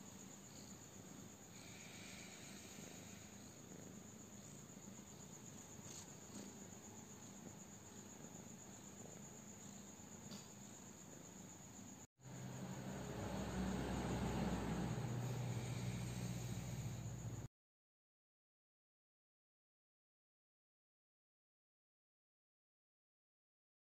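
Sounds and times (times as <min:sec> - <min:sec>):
crickets chirring: 0:00.0 - 0:17.5
low rumble: 0:12.3 - 0:17.5.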